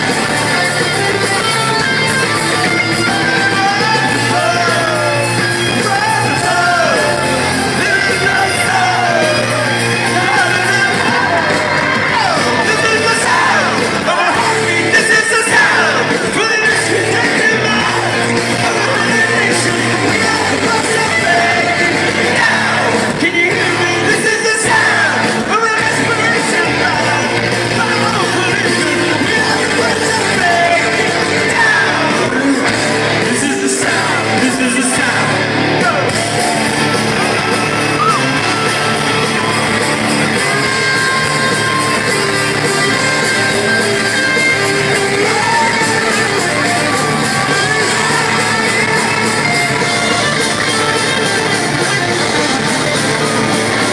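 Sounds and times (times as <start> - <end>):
crowd singing and yelling: 0.0 - 53.9
rock band playing live: 0.0 - 53.9.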